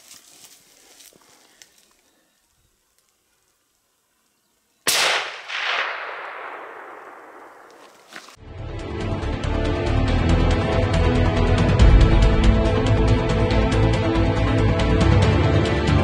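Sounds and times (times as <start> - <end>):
rifle shot with echo: 4.9 - 8.0.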